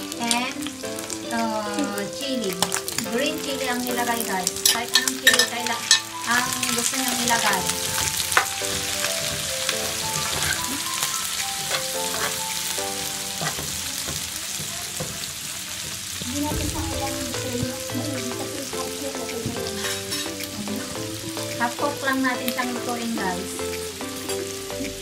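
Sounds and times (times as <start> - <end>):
background music: 0.0 - 13.9, 16.2 - 25.0
food sizzling in a wok: 0.0 - 25.0
spatula scraping a pan: 7.9 - 12.7, 13.3 - 14.2.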